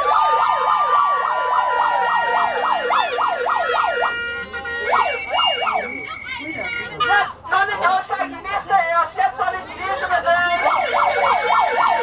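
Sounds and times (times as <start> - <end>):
electronic siren yelping: 0.0 - 4.2, 4.8 - 6.7, 10.6 - 12.0.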